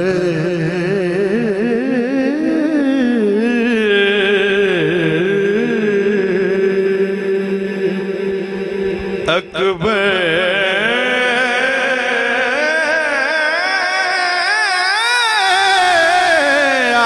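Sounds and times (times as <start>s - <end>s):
man singing held vowel: 0.0s - 17.0s
low drone: 3.6s - 14.6s.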